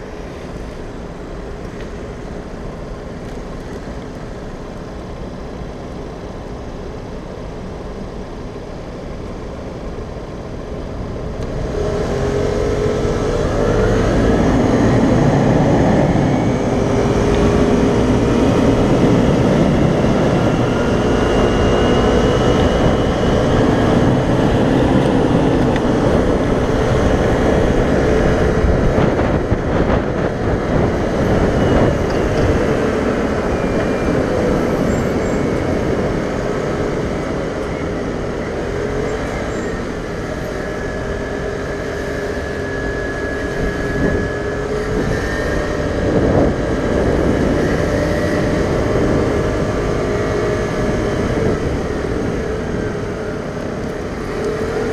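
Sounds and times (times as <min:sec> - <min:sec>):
traffic: 0:00.0 - 0:54.9
scooter engine accelerating: 0:11.5 - 0:54.9
wind rush: 0:11.5 - 0:54.9.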